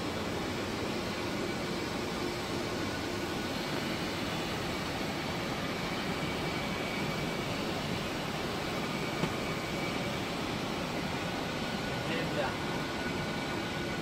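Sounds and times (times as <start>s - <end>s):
airflow and ventilation rush: 0.0s - 14.0s
faint high whine: 0.0s - 14.0s.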